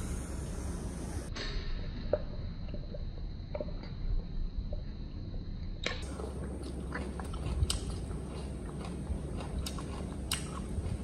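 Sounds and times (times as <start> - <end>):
monkey chewing food: 6.0 - 11.0.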